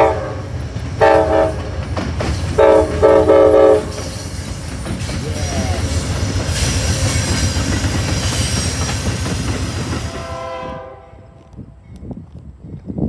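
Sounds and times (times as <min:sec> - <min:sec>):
locomotive horn chord: 0:00.0 - 0:01.7, 0:02.6 - 0:04.1, 0:10.1 - 0:11.4
locomotive engine rumble: 0:00.0 - 0:12.7
train wheel and rail noise: 0:00.0 - 0:13.0.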